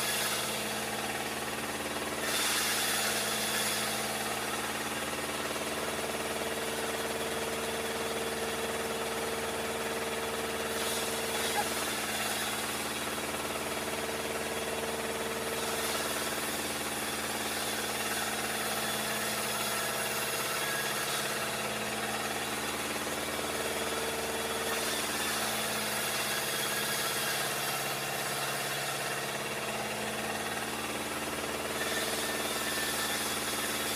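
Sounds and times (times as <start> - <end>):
sawmill machinery hum: 0.0 - 33.9.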